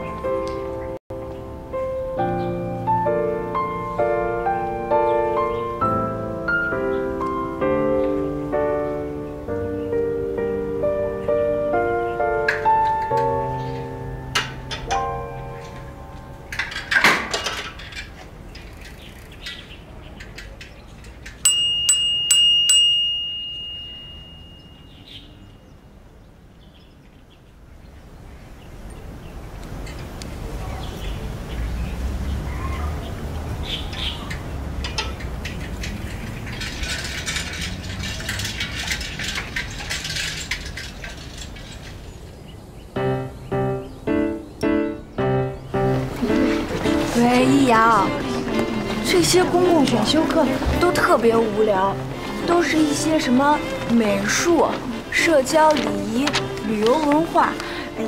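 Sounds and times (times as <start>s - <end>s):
quiet outdoor background noise: 0.0s - 58.0s
bicycle bell ringing: 21.4s - 25.1s.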